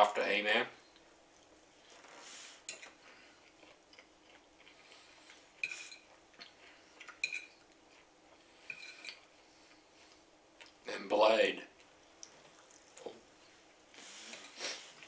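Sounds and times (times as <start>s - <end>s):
fork clinking on a plate: 5.6s - 6.1s, 7.2s - 7.6s.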